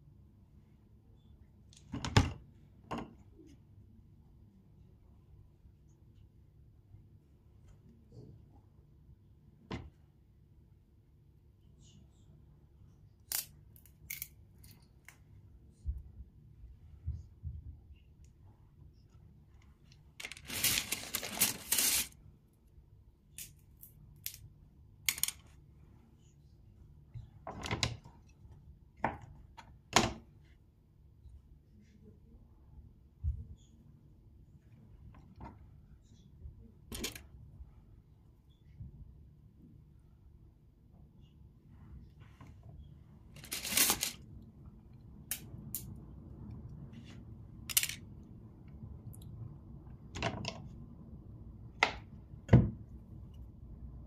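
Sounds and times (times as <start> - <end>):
plastic wrapper rustling: 20.2 - 22.2, 43.4 - 44.2.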